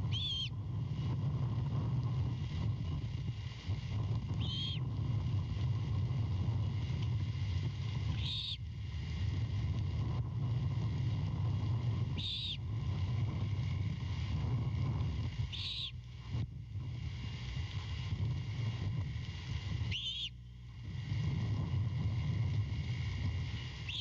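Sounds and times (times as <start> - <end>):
owlet high-pitched calls: 0.0 - 0.6, 4.4 - 4.9, 8.1 - 8.6, 12.1 - 12.6, 15.5 - 16.0, 19.9 - 20.4
low hum: 0.0 - 24.0.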